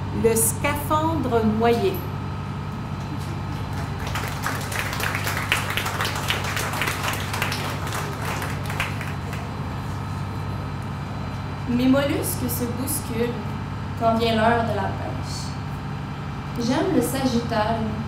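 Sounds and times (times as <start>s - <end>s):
steady low hum: 0.0s - 18.0s
audience applauding: 3.5s - 9.7s.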